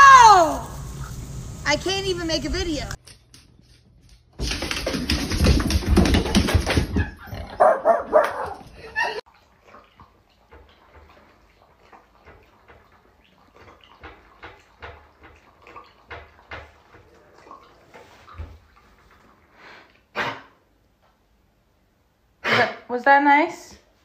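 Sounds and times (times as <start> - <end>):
dog lapping water: 9.3 - 20.1.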